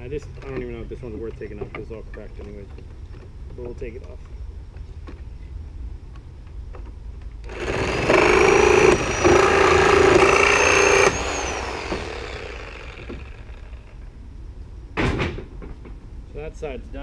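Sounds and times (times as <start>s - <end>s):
reciprocating saw cutting nails: 7.4s - 13.9s
motor winding down whine: 7.4s - 14.0s.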